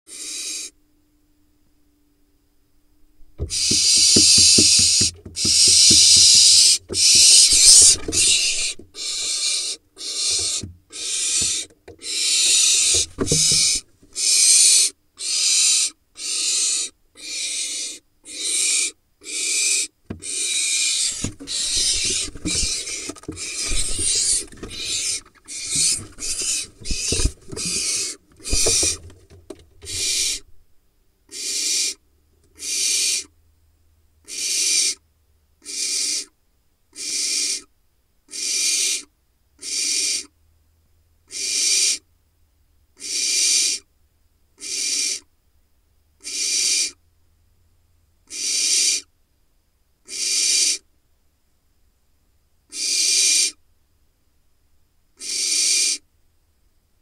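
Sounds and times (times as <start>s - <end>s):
owl chick hissing calls: 0.1s - 0.8s, 3.4s - 29.0s, 29.8s - 30.5s, 31.3s - 33.3s, 34.2s - 35.0s, 35.6s - 37.7s, 38.3s - 40.4s, 41.3s - 42.0s, 43.0s - 43.9s, 44.6s - 45.3s, 46.2s - 47.0s, 48.3s - 49.1s, 50.0s - 50.9s, 52.7s - 53.6s, 55.2s - 56.0s
scuffling and knocks in nest box: 3.4s - 9.2s, 12.5s - 13.8s, 21.1s - 30.3s.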